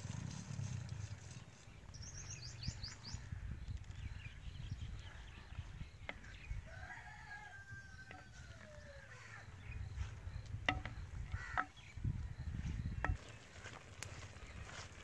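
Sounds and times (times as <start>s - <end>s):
rooster crowing: 6.6s - 9.4s
ladle knocking clay pot: 10.6s - 11.8s.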